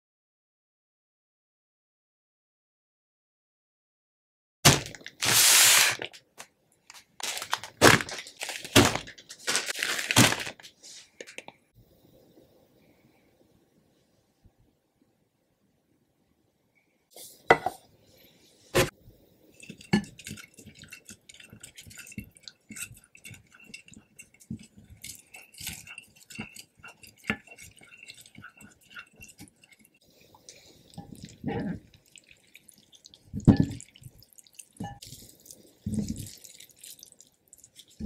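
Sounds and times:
wooden spoon stirring in glass bowl: 19.5 - 38.0.

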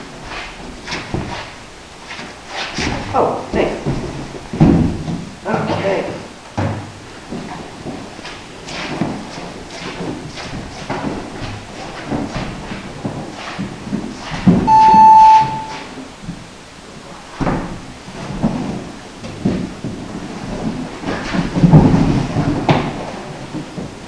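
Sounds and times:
electronic beep: 14.7 - 15.8.

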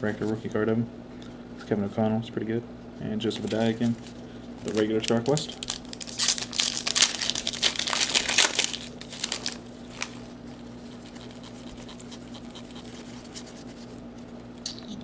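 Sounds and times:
foil wrapper crinkling and tearing: 3.4 - 10.3.

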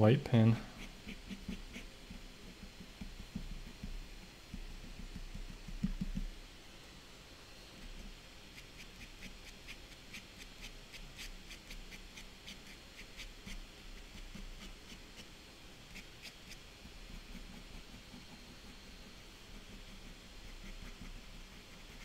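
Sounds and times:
pen scratching on paper: 0.7 - 3.8, 8.6 - 15.3, 15.9 - 22.0.

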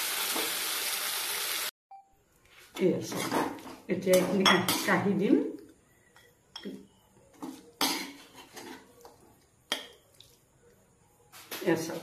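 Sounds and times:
metal spoon scraping metal pan: 7.8 - 8.9.

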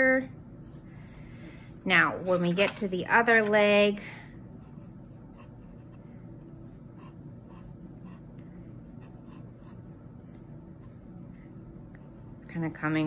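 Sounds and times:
pencil scratching on paper: 4.6 - 11.1.

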